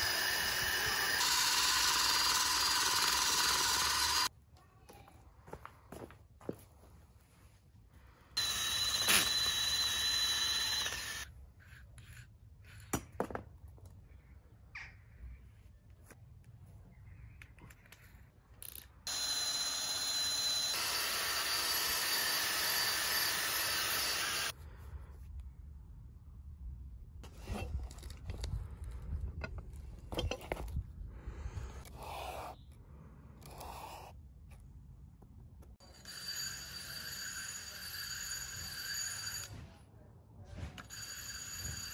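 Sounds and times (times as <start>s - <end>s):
drill whining with wire brush scraping: 0.0s - 4.3s, 8.4s - 12.2s, 19.1s - 24.6s.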